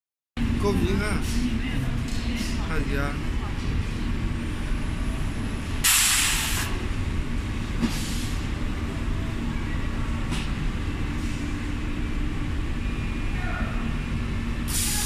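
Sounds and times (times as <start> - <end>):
pneumatic air hiss: 5.8 - 6.8, 7.8 - 8.4, 14.7 - 15.0.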